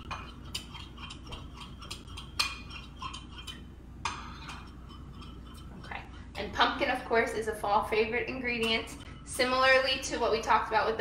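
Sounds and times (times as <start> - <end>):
wet mixture being stirred: 0.0 - 10.9
utensil clicking against glass bowl: 0.1 - 3.6.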